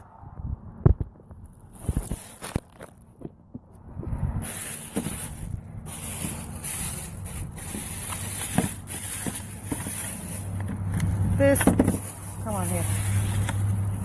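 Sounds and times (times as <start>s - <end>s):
plastic bag rustling: 1.7s - 3.0s, 4.4s - 14.0s.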